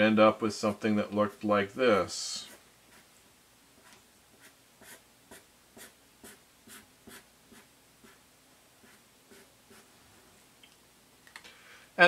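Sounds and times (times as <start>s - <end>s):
marker scratching on paper: 2.4s - 3.1s, 3.8s - 8.2s, 8.8s - 9.9s.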